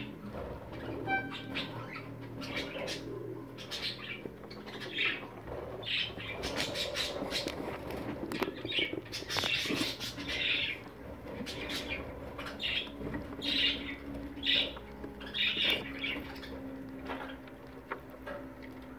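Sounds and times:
chicks raspy begging calls: 0.0 - 18.9
clicks and rustles in nest box: 4.2 - 18.9.

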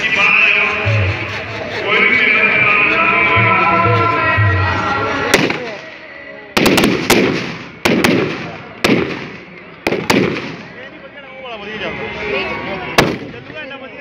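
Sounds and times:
music: 0.0 - 5.6
fireworks banging: 0.0 - 5.9, 6.6 - 10.8, 13.0 - 13.6.

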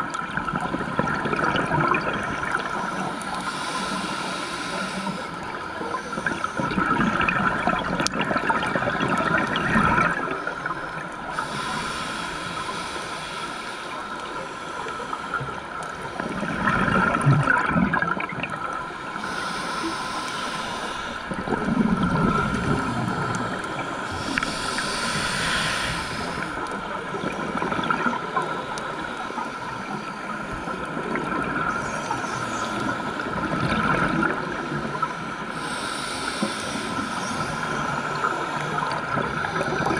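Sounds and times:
bubbles gurgling underwater: 0.0 - 3.1, 6.2 - 11.0, 16.2 - 18.8, 21.3 - 24.6, 26.9 - 28.6, 30.6 - 31.9, 32.8 - 35.1, 37.9 - 39.9
regulator hissing inhalations: 3.2 - 5.4, 11.3 - 15.4, 19.2 - 21.4, 24.0 - 26.8, 35.5 - 38.0.

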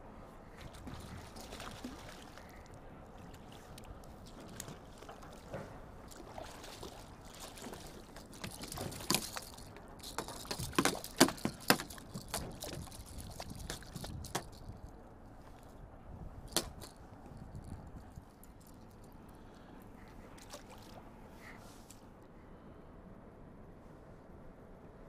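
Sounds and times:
fish splashing in water: 0.8 - 2.7, 6.1 - 14.0.

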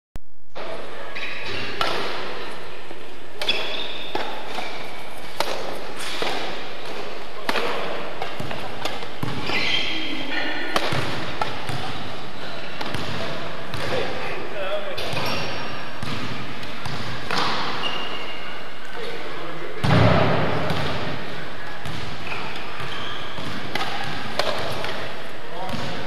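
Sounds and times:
rackets hitting shuttlecocks: 1.4 - 2.5, 3.4 - 14.2, 16.0 - 17.9, 19.8 - 26.0
short high squeaks: 17.8 - 18.6.

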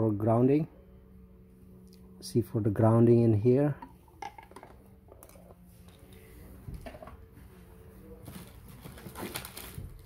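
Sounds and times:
rustling and scraping: 5.3 - 10.0.

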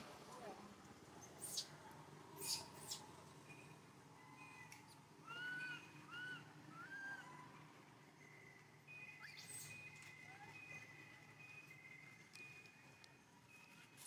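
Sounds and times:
baby monkey calls: 1.4 - 1.8, 2.4 - 3.1, 5.2 - 7.4.

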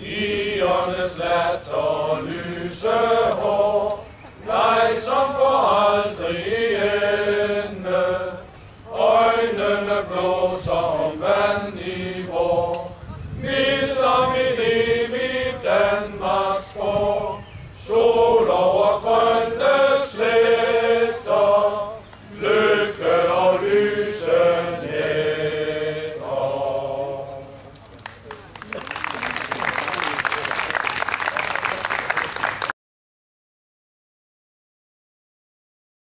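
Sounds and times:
men's choir singing unaccompanied: 0.0 - 27.7.

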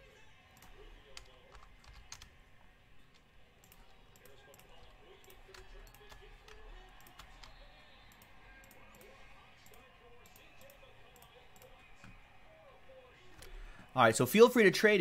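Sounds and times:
computer mouse clicking: 0.6 - 2.3, 3.1 - 12.2, 13.3 - 13.6.

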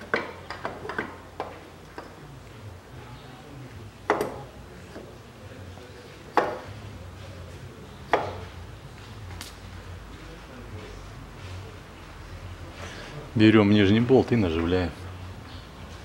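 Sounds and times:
sharp knocks on metal: 4.1 - 4.4, 6.3 - 6.7, 8.1 - 8.5.

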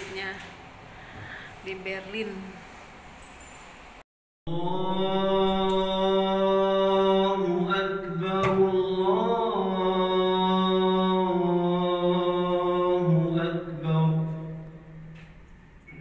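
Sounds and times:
man chanting in long held notes: 4.5 - 15.0.

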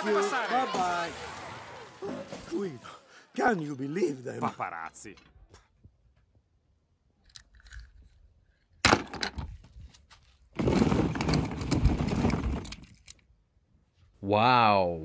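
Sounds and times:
hard objects rattling: 10.6 - 13.1.

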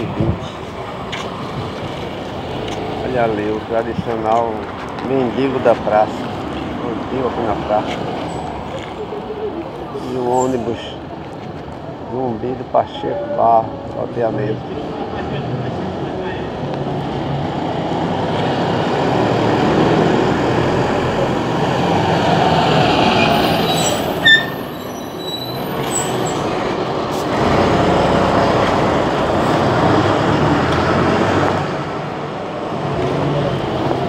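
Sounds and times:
bus driving past: 14.6 - 34.0
brief high squeal: 23.3 - 26.4.

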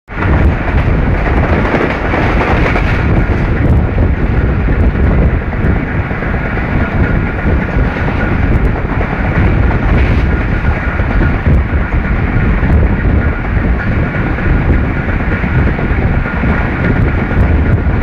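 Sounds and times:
train wheels rumbling on rails: 0.1 - 18.0.

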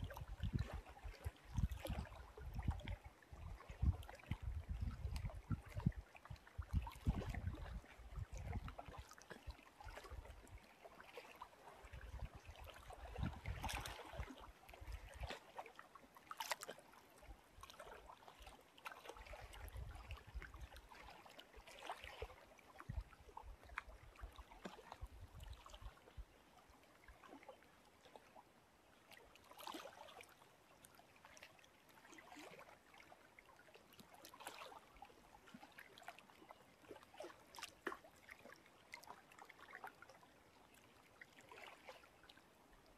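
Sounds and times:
wind rumble on microphone: 0.0 - 9.0, 11.9 - 15.3, 19.4 - 20.7, 22.9 - 23.7, 25.0 - 26.2
lake waves lapping: 0.0 - 42.9.

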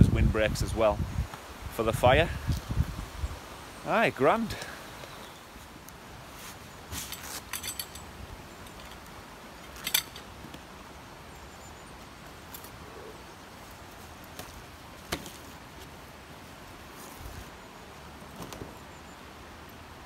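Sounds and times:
faint steady hiss: 0.0 - 20.0
camping kit clicks and clinks: 6.9 - 10.6.

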